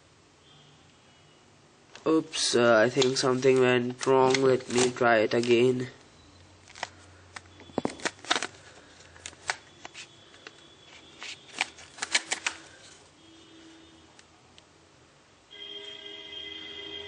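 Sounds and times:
plastic phone clicks and rattles: 0:06.7 - 0:08.6, 0:11.5 - 0:12.7.

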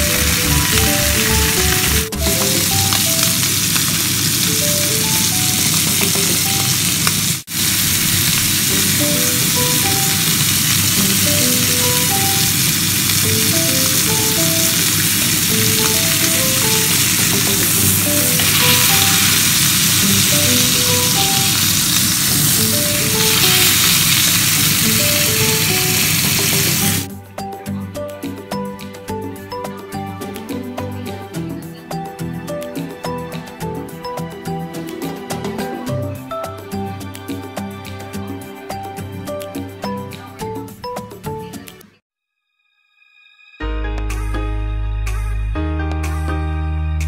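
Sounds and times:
light melody of short notes: 0:00.0 - 0:03.6
steaks sizzling in pan: 0:00.0 - 0:27.1.

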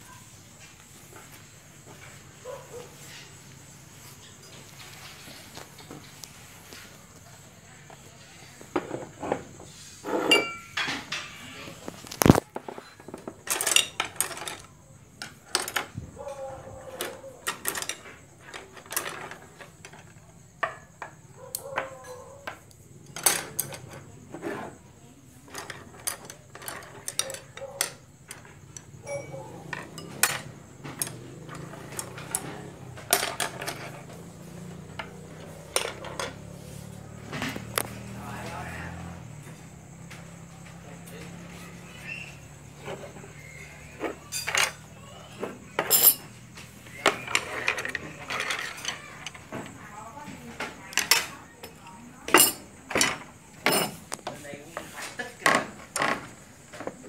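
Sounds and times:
dishes clinking on wooden table: 0:10.1 - 0:11.4, 0:52.3 - 0:54.4
low voices: 0:23.2 - 0:57.0.

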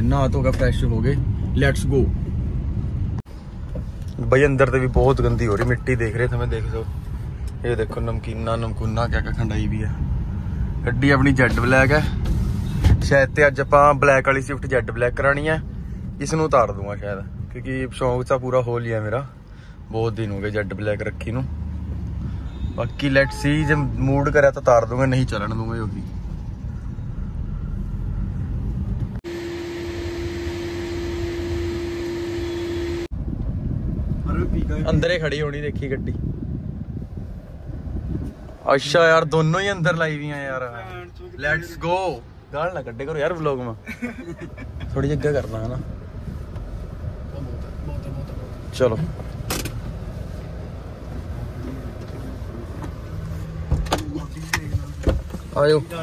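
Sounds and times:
car road and engine rumble: 0:00.0 - 0:56.0
vacuum cleaner running: 0:29.3 - 0:33.1.

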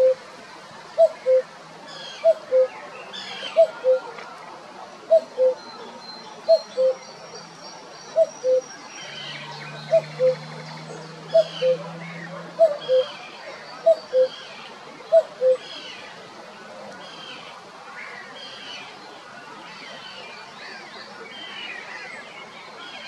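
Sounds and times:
cuckoo calling: 0:00.0 - 0:00.2, 0:01.0 - 0:04.2, 0:05.1 - 0:07.1, 0:08.1 - 0:09.1, 0:09.7 - 0:13.2, 0:13.8 - 0:14.4, 0:15.1 - 0:15.8
small birds chirping: 0:05.1 - 0:16.2.

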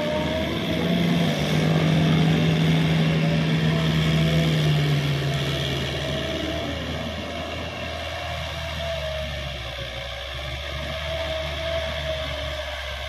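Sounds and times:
tractor engine running under load: 0:00.0 - 0:13.0.

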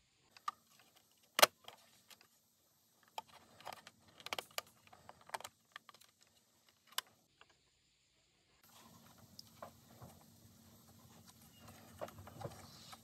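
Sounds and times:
plastic toy clicks and knocks: 0:03.0 - 0:06.2.

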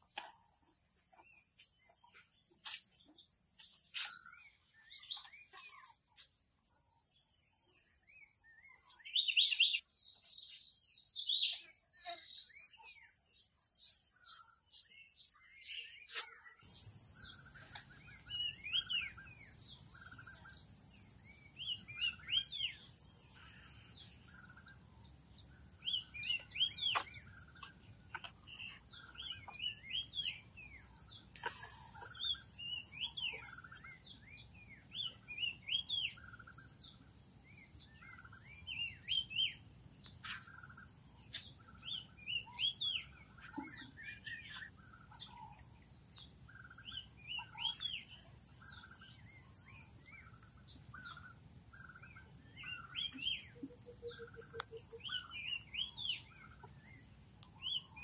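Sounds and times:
high-pitched insect buzz: 0:02.4 - 0:04.4, 0:31.4 - 0:33.8, 0:47.7 - 0:55.4
birds chirping: 0:08.0 - 0:24.6, 0:25.9 - 0:33.8, 0:46.6 - 0:58.0.

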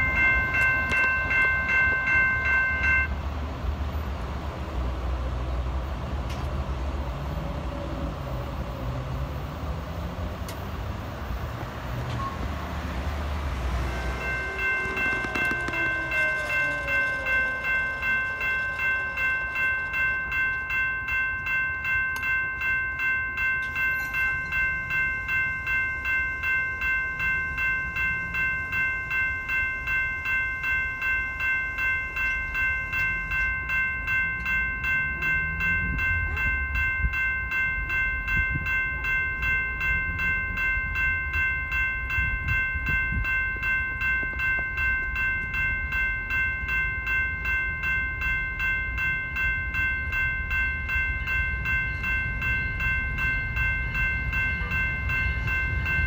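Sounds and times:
crossing warning bell ringing: 0:00.0 - 0:56.0
train rumble: 0:00.0 - 0:56.0.

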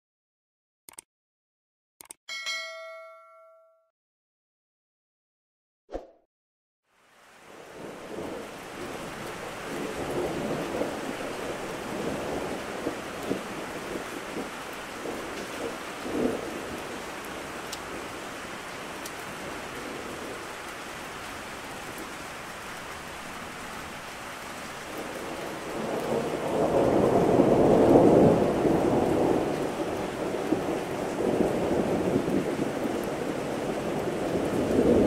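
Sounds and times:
steady rain falling: 0:06.9 - 0:35.0
thunder rumbling: 0:07.7 - 0:18.1, 0:24.9 - 0:35.0.

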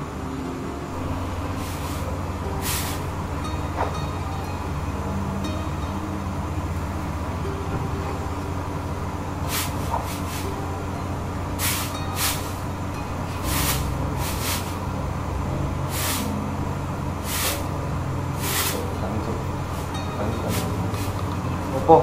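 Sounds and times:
steady low hum: 0:00.0 - 0:22.0
short hissing sounds: 0:01.6 - 0:03.0, 0:09.5 - 0:10.4, 0:11.6 - 0:12.6, 0:13.4 - 0:14.8, 0:15.9 - 0:16.3, 0:17.2 - 0:17.7, 0:18.4 - 0:18.9.

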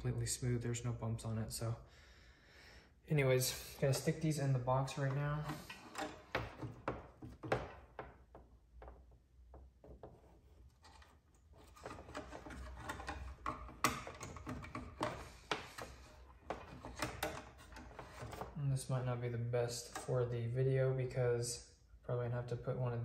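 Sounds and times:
cable rustling and scraping: 0:03.4 - 0:09.0, 0:09.9 - 0:18.6.

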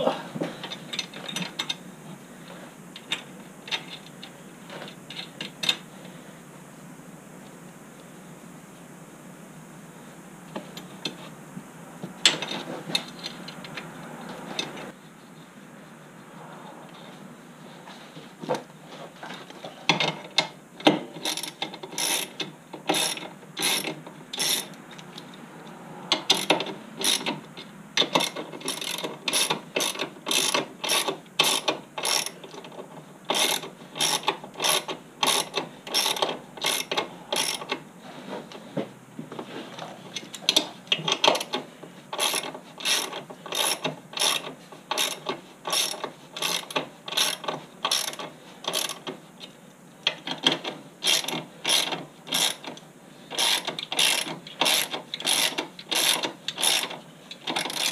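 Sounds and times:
socket ratchet clicking: 0:26.2 - 0:27.3, 0:28.0 - 0:32.4, 0:33.3 - 0:37.8, 0:42.2 - 0:49.1, 0:50.1 - 0:57.9.

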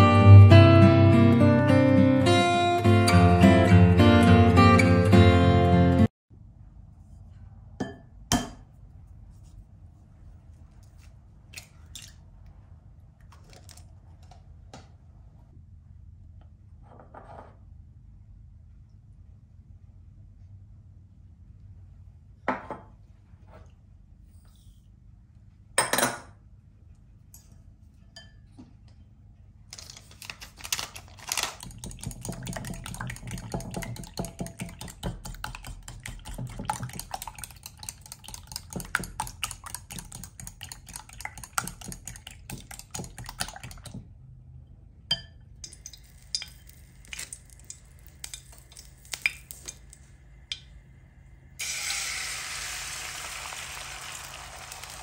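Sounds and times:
whisk clicking against glass bowl: 0:31.6 - 0:44.0
oil sizzling in a frying pan: 0:45.7 - 0:49.7, 0:51.6 - 0:55.0.

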